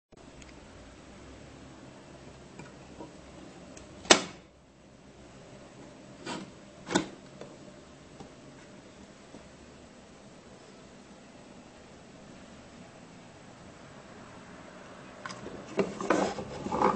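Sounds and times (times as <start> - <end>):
cabinet door clicks: 4.0 - 4.4.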